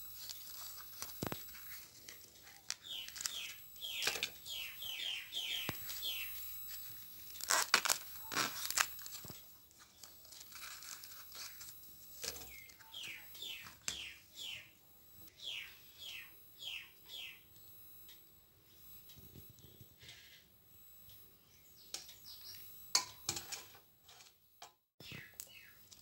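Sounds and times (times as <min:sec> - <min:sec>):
bird calling with falling notes: 0:15.4 - 0:17.4.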